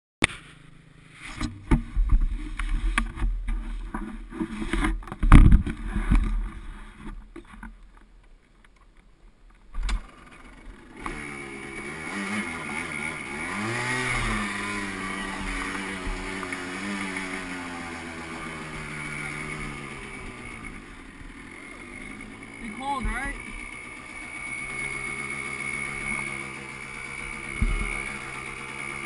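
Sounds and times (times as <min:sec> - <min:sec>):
two-stroke engine revving: 0:09.8 - 0:29.0.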